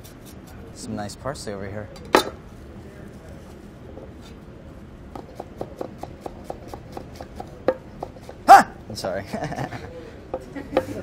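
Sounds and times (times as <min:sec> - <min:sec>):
knife chopping on wooden board: 0:05.2 - 0:08.4.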